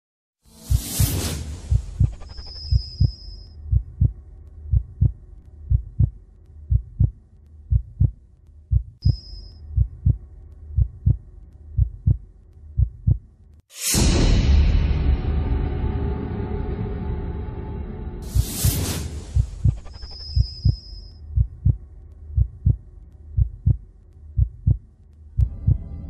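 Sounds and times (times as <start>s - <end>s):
heartbeat thumps: 0.6s - 13.3s, 19.2s - 26.0s
dark droning score: 1.7s - 7.7s, 8.4s - 26.0s
loud sudden hit: 13.8s - 19.4s.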